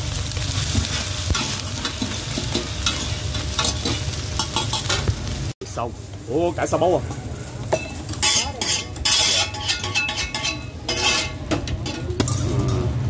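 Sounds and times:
frying sizzle: 0.0 - 13.0
metal utensils scraping and clinking: 0.6 - 5.1, 7.7 - 13.0.

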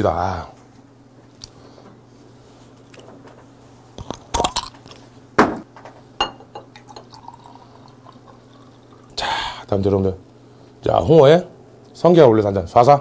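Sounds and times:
glass bottle clinking: 6.2 - 8.6
liquid pouring into glass: 6.2 - 9.7.

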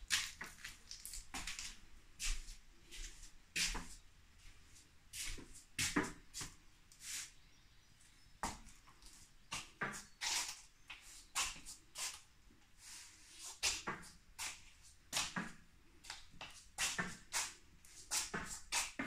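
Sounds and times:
footsteps on a hard floor: 1.4 - 4.0.

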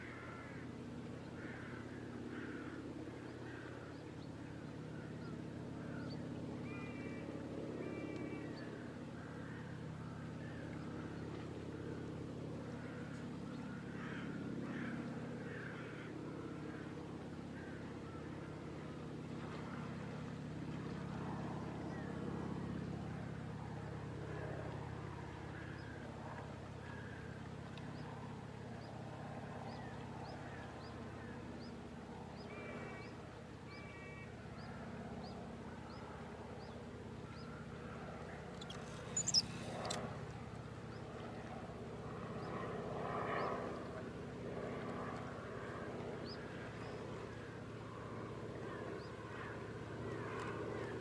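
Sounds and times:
distant motorboat engine: 0.0 - 51.0
faint animal calls: 38.6 - 40.0.

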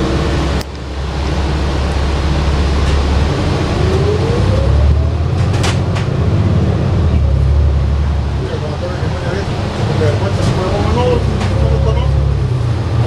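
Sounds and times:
thin rising whine: 0.0 - 5.4
bus engine and road rumble: 0.0 - 13.0.

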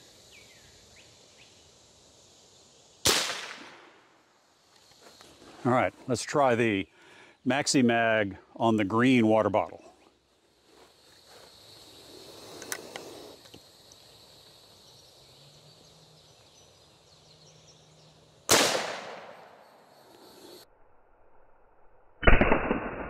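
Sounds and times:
rifle shot: 3.0 - 4.0, 18.5 - 19.5, 22.2 - 23.0
slowed-down dull gunshot: 3.0 - 4.0, 18.5 - 19.6, 22.2 - 23.0.

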